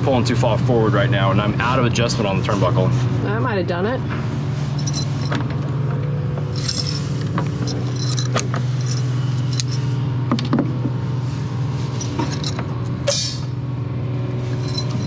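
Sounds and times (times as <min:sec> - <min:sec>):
low motor-like hum: 0:00.0 - 0:15.0
metal hardware clinking: 0:04.7 - 0:05.5, 0:06.4 - 0:10.0, 0:11.9 - 0:12.7, 0:14.5 - 0:15.0.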